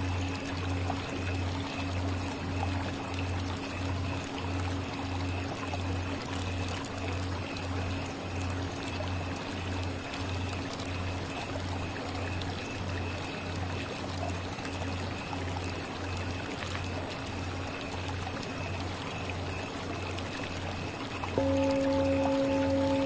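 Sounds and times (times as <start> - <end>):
singing bowl ringing: 21.4 - 23.0.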